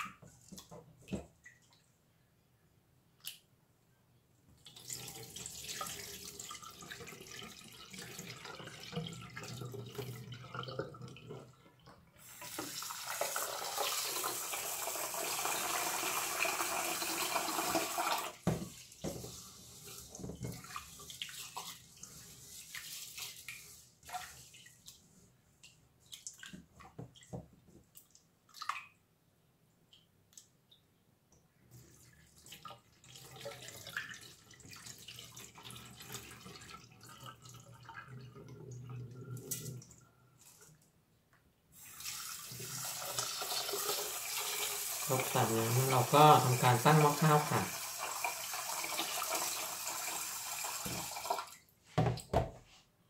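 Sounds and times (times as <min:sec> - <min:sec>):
water splashing and dripping: 0:15.4 - 0:29.0, 0:31.7 - 0:40.9
water swishing through rice: 0:18.6 - 0:27.3.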